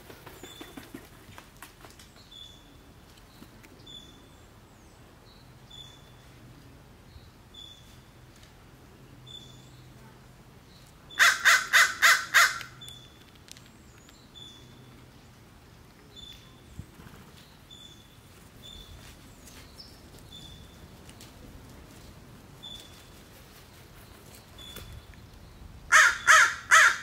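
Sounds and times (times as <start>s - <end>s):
crow cawing: 11.2s - 12.7s, 25.9s - 27.0s.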